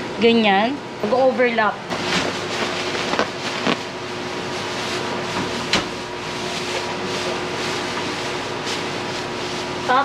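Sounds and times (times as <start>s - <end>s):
steady machine hum: 0.0s - 10.0s
plastic bag crinkling: 2.1s - 5.1s.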